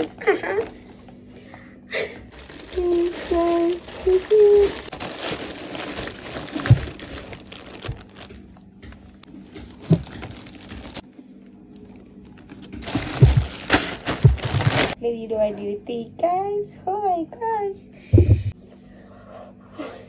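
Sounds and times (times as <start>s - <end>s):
plastic wrapping crinkling: 0.0s - 1.1s, 2.3s - 11.1s, 11.8s - 15.0s
short thumps: 18.2s - 18.6s.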